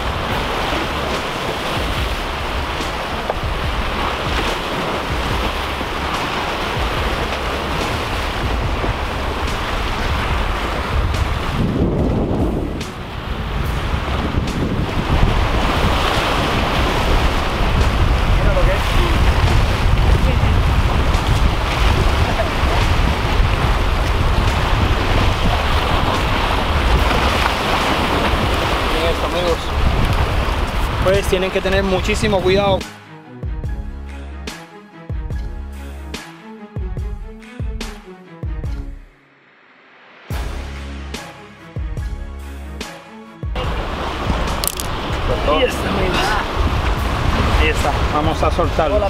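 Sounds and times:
surf breaking against rocks: 0.0s - 32.8s, 43.6s - 49.0s
wind buffeting microphone: 0.0s - 32.9s, 43.6s - 49.0s.

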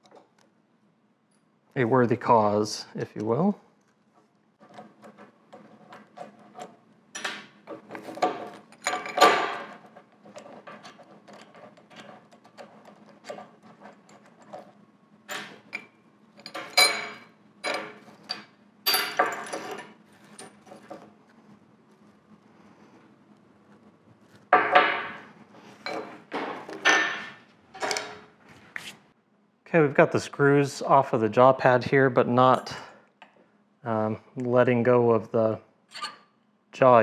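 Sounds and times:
metal vise parts clinking: 5.8s - 14.7s, 15.3s - 21.0s, 25.8s - 28.3s, 35.9s - 36.2s.

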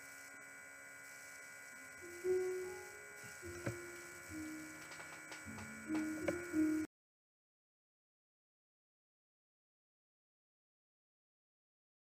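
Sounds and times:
electrical hum with high whine: 0.0s - 6.9s.

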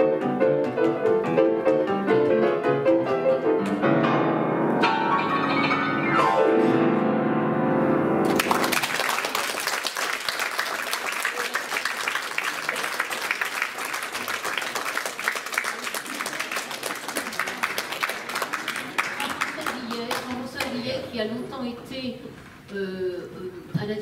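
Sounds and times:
piano chord ringing: 1.9s - 8.4s
audience applauding: 8.2s - 20.8s.

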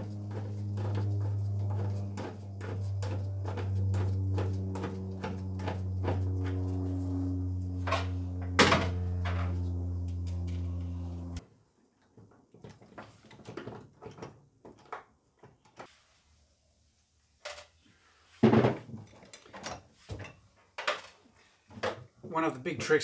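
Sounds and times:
steady low hum: 0.0s - 11.4s.

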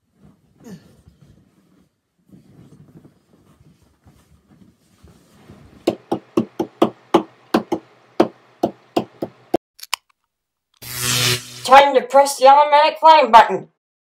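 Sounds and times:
faint rustling: 0.0s - 5.8s
sharp knocks: 5.9s - 9.4s.

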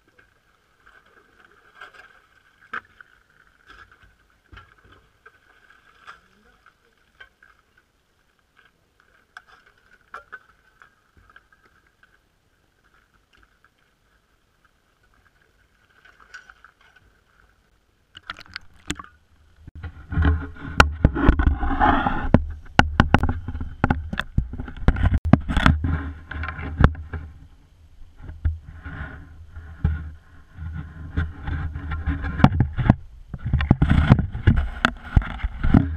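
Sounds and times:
water sloshing: 0.0s - 21.6s
knocking and rumbling of handling: 19.8s - 27.4s, 29.8s - 35.9s.

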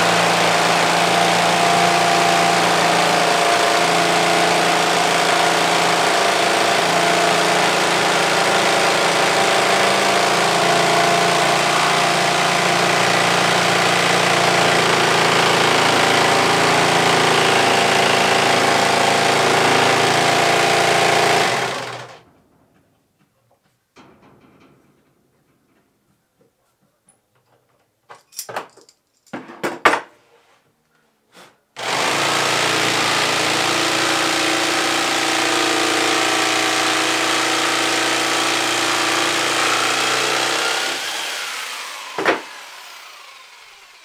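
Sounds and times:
jigsaw cutting wood: 0.0s - 22.2s, 31.8s - 44.0s.

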